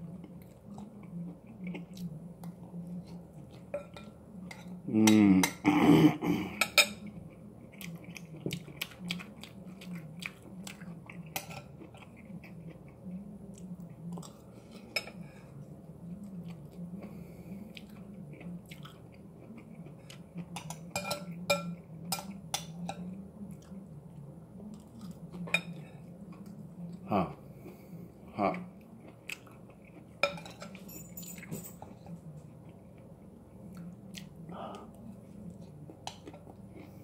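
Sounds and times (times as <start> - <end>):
person chewing: 7.6 - 14.8, 16.2 - 20.8, 28.5 - 30.3, 33.7 - 37.0.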